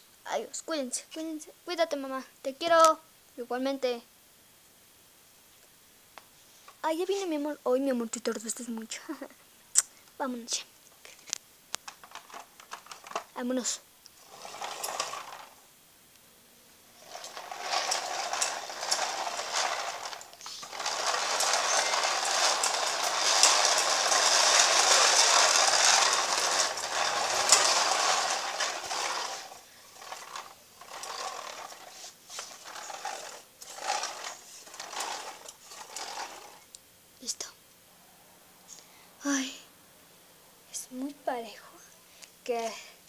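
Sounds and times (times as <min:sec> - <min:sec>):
plastic toy wheels rolling on tiles: 0:11.3 - 0:15.6, 0:16.9 - 0:36.7.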